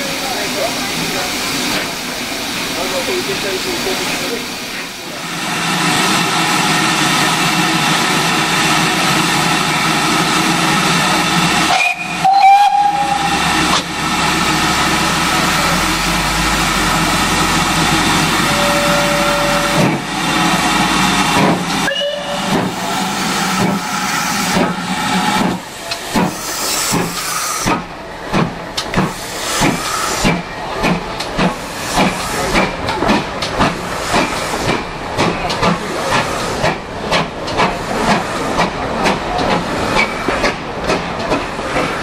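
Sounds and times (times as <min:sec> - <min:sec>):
steam locomotive hissing: 0:00.0 - 0:42.0
steam whistle blast: 0:11.7 - 0:13.4, 0:18.4 - 0:19.9, 0:21.8 - 0:22.6
low steam whistle toot: 0:11.7 - 0:13.5, 0:18.4 - 0:19.9, 0:21.8 - 0:22.6.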